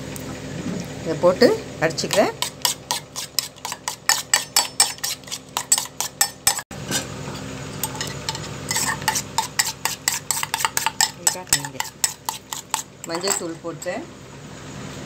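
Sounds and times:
spoon clinking in steel bowl: 2.4 - 7.0, 7.7 - 14.0.

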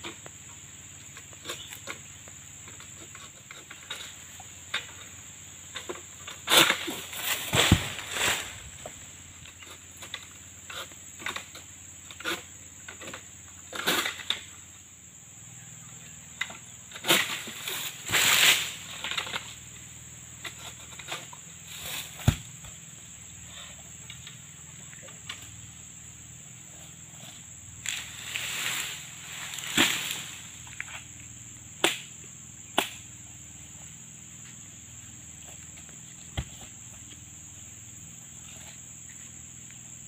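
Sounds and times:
high-pitched insect drone: 0.0 - 40.0
fronds rustling and cracking: 6.5 - 9.5, 27.8 - 32.1
fruit bunch thudding on ground: 6.8 - 9.0, 22.1 - 22.7.

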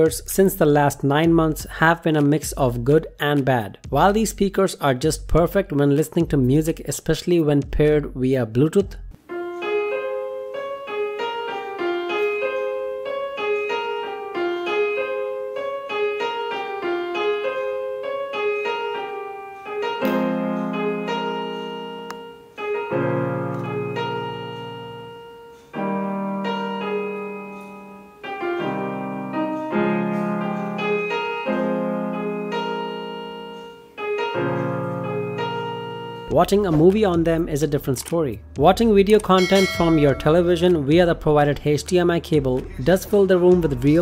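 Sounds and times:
flowing piano notes: 9.3 - 36.4, 39.3 - 41.4
deep piano bass chords: 20.0 - 44.0.

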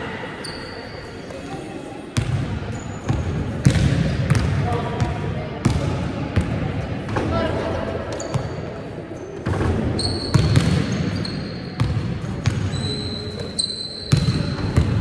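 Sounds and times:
trainers squeaking on court: 0.4 - 1.3, 8.1 - 11.9, 12.5 - 14.8
basketball bouncing on hall floor: 2.2 - 7.2, 9.4 - 13.2, 14.0 - 15.0.

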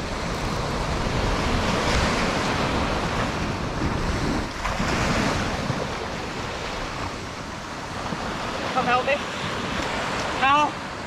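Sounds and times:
surf washing on beach: 0.0 - 11.0
wind buffeting microphone: 0.0 - 11.0.

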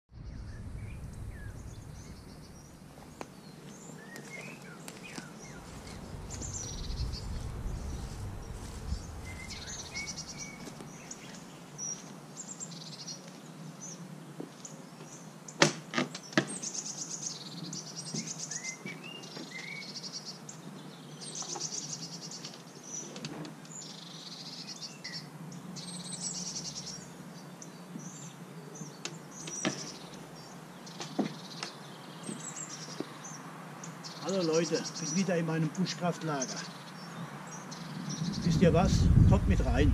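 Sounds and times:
low wind rumble: 0.1 - 3.9, 5.0 - 11.8, 37.8 - 39.9
songbirds chirping: 0.1 - 15.6, 16.2 - 39.9.

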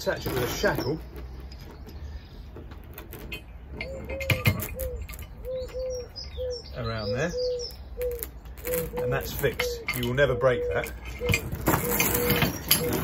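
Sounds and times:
pigeon cooing: 3.8 - 13.0
steel chain clinking: 10.9 - 13.0.

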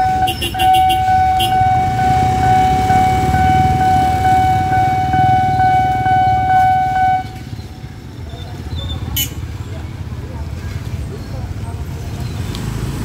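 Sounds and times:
level crossing alarm tone: 0.0 - 7.8
motorcycle engines idling: 0.0 - 13.0.

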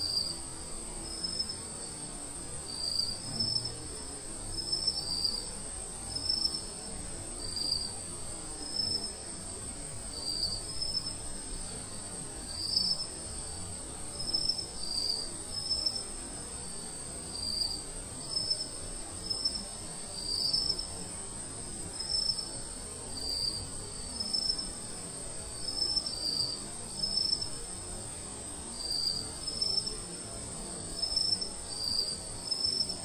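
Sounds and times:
insects buzzing high-pitched: 0.0 - 33.0
insects chirping: 0.1 - 0.4, 2.7 - 3.8, 4.5 - 11.6, 12.5 - 16.6, 17.3 - 20.9, 22.0 - 22.6, 23.2 - 24.7, 25.4 - 33.0.

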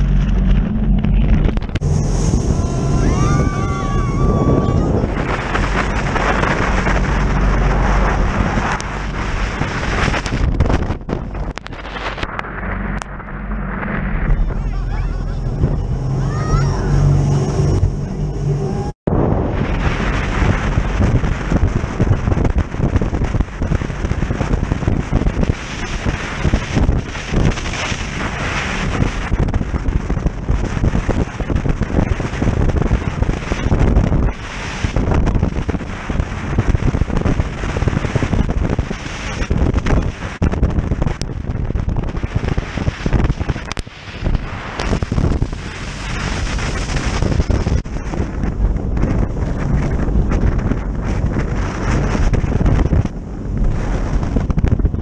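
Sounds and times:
low thumps: 0.0 - 27.6
boat engine drone: 0.0 - 55.0
rushing water and spray: 0.0 - 55.0
wind buffeting microphone: 0.0 - 55.0
sharp crackles: 5.2 - 15.0.

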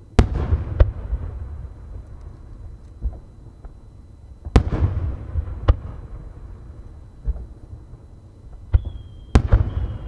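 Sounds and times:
small firework crack: 8.5 - 10.0
loud firework boom: 8.7 - 10.0.

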